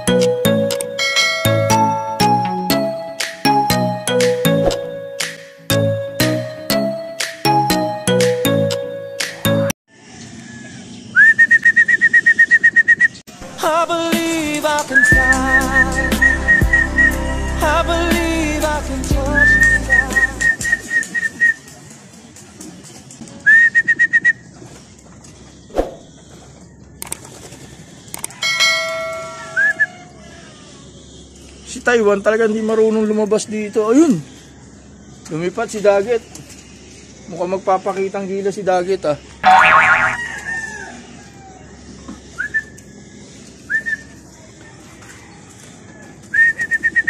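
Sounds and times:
person whistling: 0:14.9 - 0:17.2, 0:19.3 - 0:21.3.

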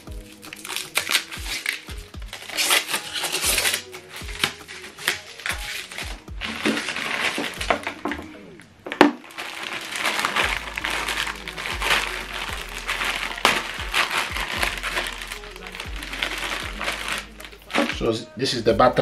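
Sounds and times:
plastic bag crinkling: 0:00.0 - 0:18.4.

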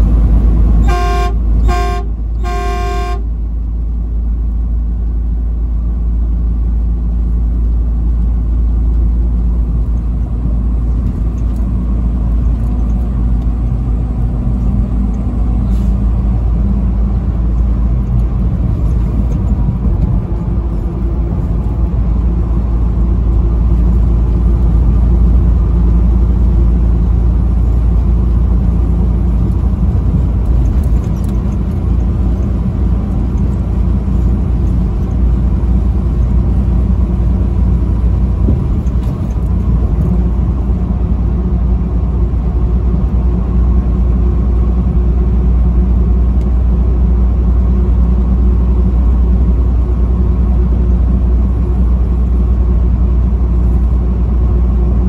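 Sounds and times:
truck engine drone: 0:00.0 - 0:55.0
tyres on highway: 0:00.0 - 0:55.0
truck horn blast: 0:00.8 - 0:03.4.

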